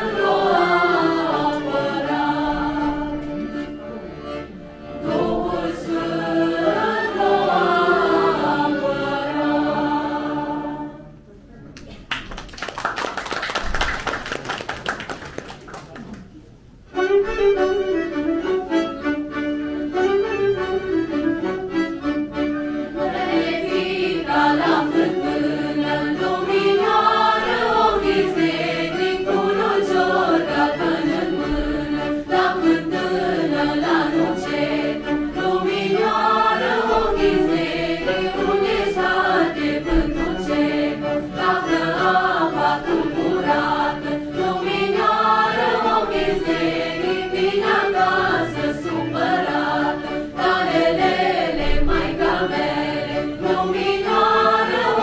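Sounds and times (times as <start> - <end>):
violin accompaniment: 0.0 - 11.2, 16.8 - 55.0
choir singing a carol: 0.0 - 11.3, 17.9 - 55.0
applause: 11.8 - 16.3.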